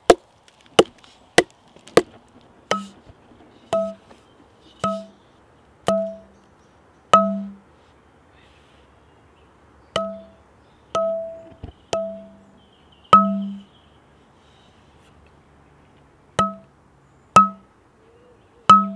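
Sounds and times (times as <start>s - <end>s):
hard object struck ringing: 2.7s - 3.0s, 3.7s - 4.0s, 4.8s - 5.2s, 5.9s - 6.3s, 7.2s - 7.6s, 10.0s - 10.4s, 11.0s - 12.5s, 13.1s - 13.7s, 16.4s - 16.7s, 17.4s - 17.7s.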